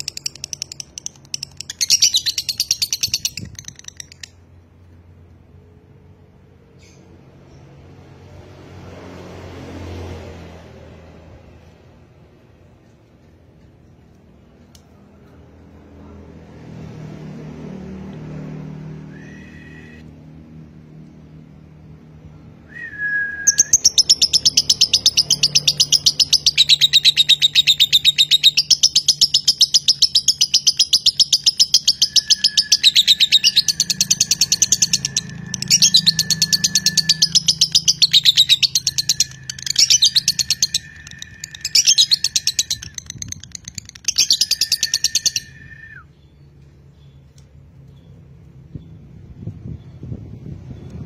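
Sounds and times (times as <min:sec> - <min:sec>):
lovebird chattering trill: 0:00.0 - 0:04.5, 0:23.5 - 0:45.6
steady whistled note: 0:19.0 - 0:20.0, 0:22.7 - 0:23.8, 0:31.8 - 0:43.1, 0:44.4 - 0:46.1.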